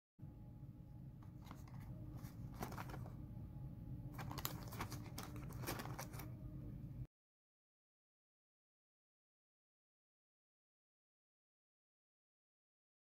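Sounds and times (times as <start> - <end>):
low steady hum: 0.2 - 7.1
cardboard box crackling: 1.4 - 3.1, 4.2 - 6.3.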